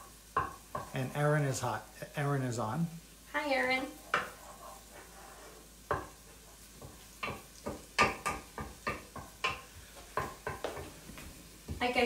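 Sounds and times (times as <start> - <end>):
wooden spoon knocking on skillet: 0.0 - 1.2, 4.0 - 4.5, 5.8 - 12.0.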